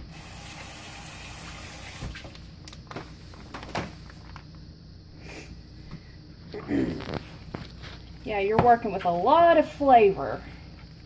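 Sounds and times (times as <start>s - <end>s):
kitchen tap running: 0.0s - 2.4s.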